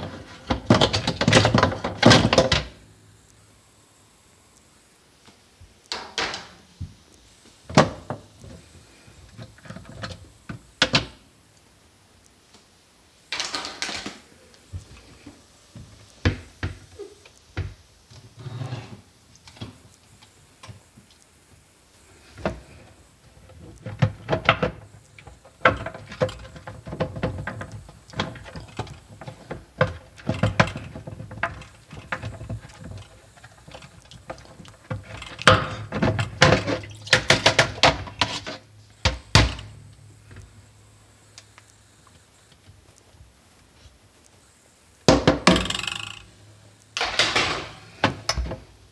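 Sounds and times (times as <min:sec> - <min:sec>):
plastic parts clicking and clattering: 0:23.7 - 0:38.6, 0:45.4 - 0:46.3.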